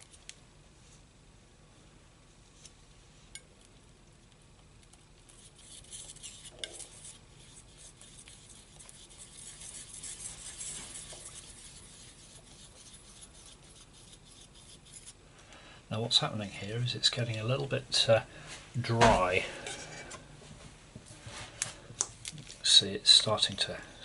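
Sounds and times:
palette knife scraping paint: 5.2 - 15.2.

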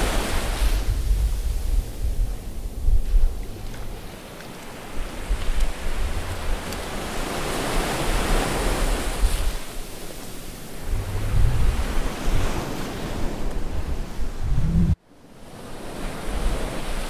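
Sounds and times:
wind rumbling on microphone: 0.0 - 15.0
ocean waves surging: 3.5 - 17.0.

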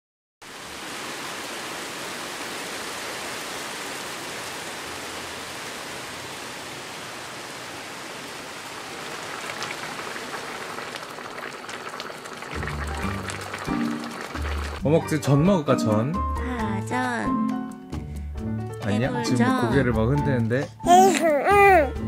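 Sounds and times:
rain pattering on paving: 0.5 - 14.8
sharp crackles: 8.7 - 14.8.

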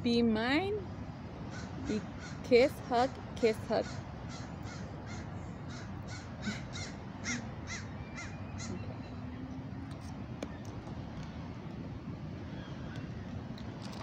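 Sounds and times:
crow cawing: 1.5 - 2.4, 3.8 - 8.8.

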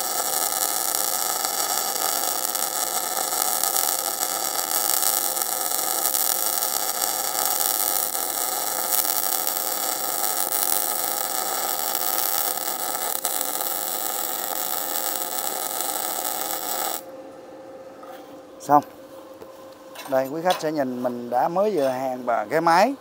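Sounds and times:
welding arc hissing: 0.0 - 17.1.

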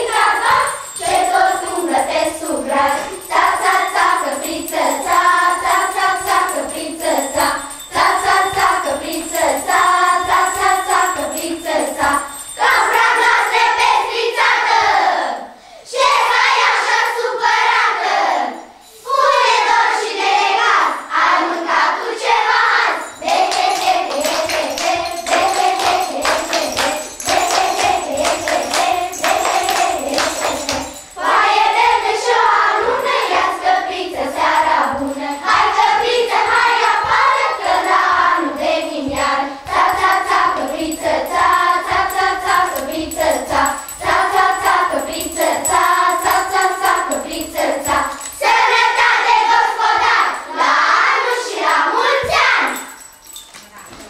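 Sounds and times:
jingling: 0.0 - 13.8, 23.0 - 50.6, 51.2 - 54.0
children singing: 0.0 - 53.0
hand clapping: 23.2 - 31.4.

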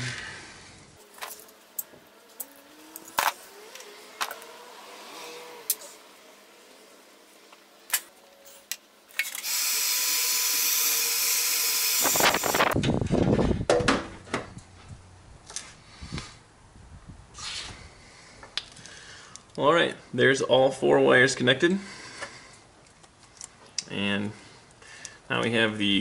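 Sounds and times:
heat gun blowing: 9.3 - 12.8.

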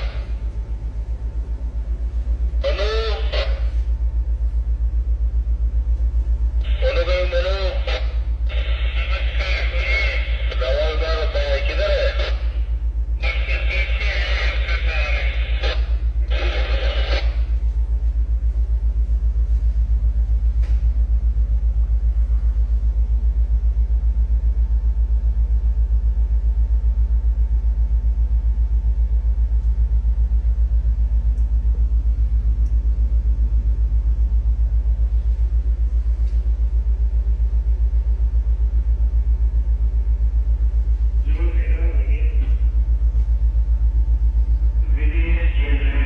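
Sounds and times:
ship diesel machinery rumbling: 0.0 - 19.4.

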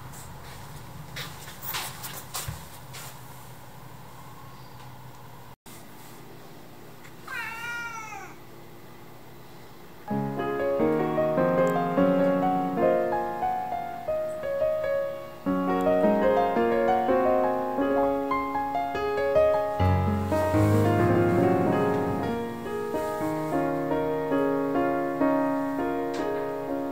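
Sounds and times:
cat meowing: 7.2 - 8.4
piano music: 10.1 - 26.9.

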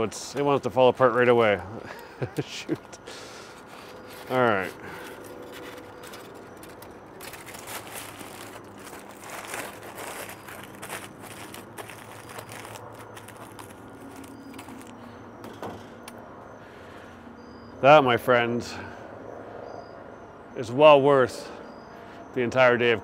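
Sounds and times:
aluminium foil crinkling: 2.7 - 15.0.

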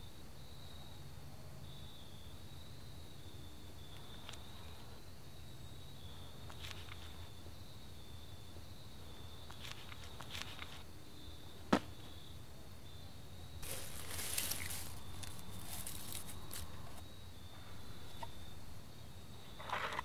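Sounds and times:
faint high whine: 0.0 - 20.0
small clicks: 3.9 - 4.5
rustling dry leaves: 13.6 - 17.0.

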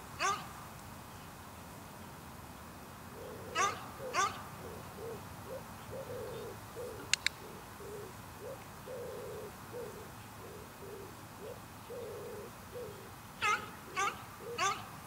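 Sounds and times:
sharp double click: 7.1 - 7.4.

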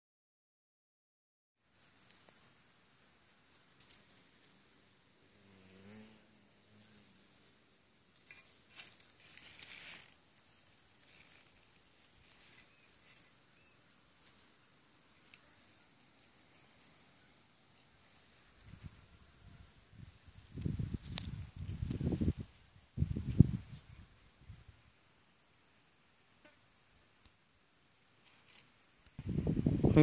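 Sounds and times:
soft rustles and clicks: 1.7 - 2.6, 8.1 - 13.4
high-pitched insect trill: 1.7 - 30.0.

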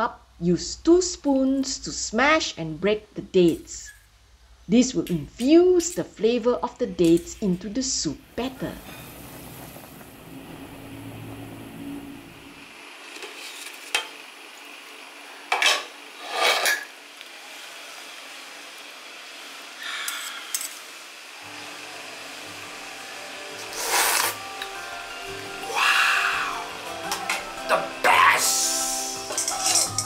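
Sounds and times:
metal spoon clinking on pot: 29.3 - 30.0.

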